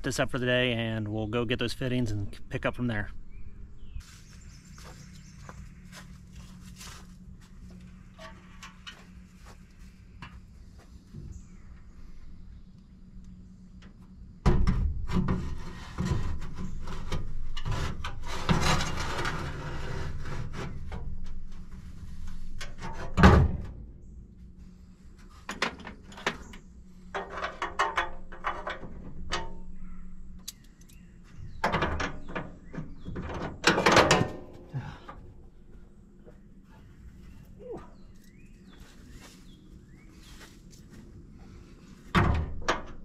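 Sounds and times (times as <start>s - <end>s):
tools and parts clattering: 25.4s - 29.7s, 31.5s - 34.8s.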